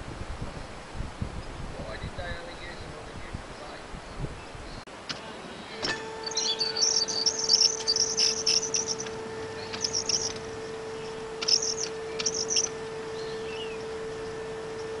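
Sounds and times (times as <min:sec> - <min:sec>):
model tram whine: 0:04.9 - 0:15.0
high-pitched chirping squeals: 0:05.6 - 0:14.4.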